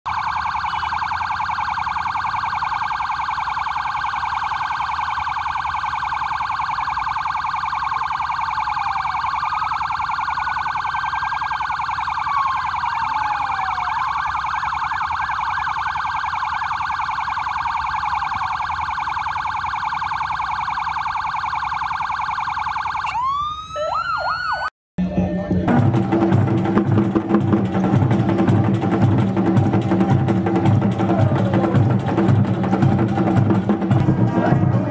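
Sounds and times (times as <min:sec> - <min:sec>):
sirens warbling and wailing: 0:00.1 - 0:34.9
drumming: 0:25.0 - 0:34.9.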